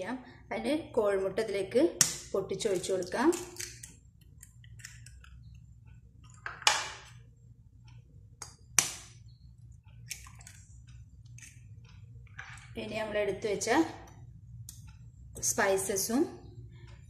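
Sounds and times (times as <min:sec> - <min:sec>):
egg cracking knocks: 0:08.4 - 0:09.2.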